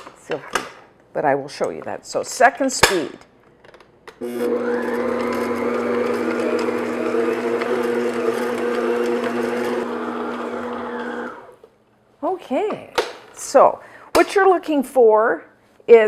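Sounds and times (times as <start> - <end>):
stand mixer motor hum: 4.2 - 11.6.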